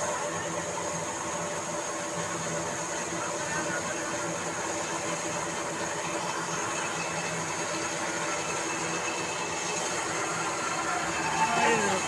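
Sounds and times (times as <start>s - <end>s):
band saw running: 3.9s - 12.0s.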